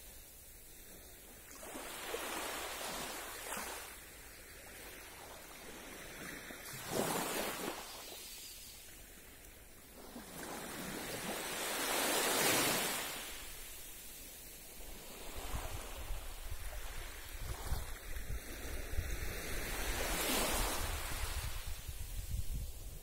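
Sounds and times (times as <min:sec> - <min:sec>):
waves washing onto beach: 0:00.0 - 0:23.0
wind buffeting microphone: 0:15.2 - 0:23.0.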